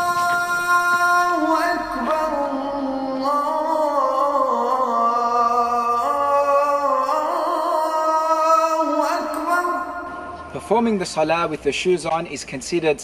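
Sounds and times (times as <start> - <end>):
person singing long held notes: 0.0 - 10.6.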